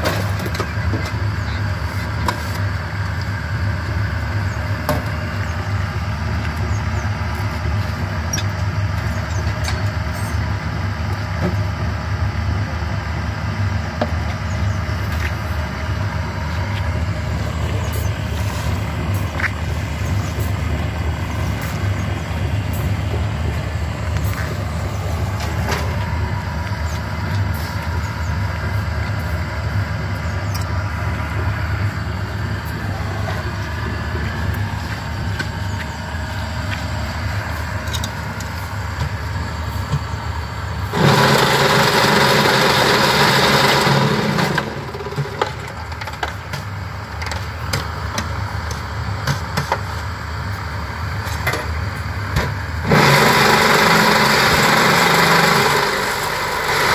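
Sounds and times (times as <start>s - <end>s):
concrete mixer motor drone: 0.0s - 56.9s
machine vibrator harsh rattle: 15.9s - 46.5s, 52.6s - 56.9s.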